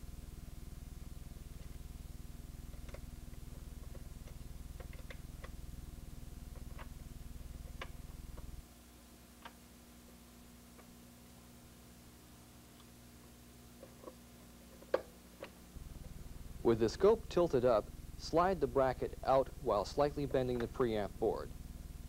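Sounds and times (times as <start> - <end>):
low hum: 0.0 - 9.1, 15.6 - 22.0.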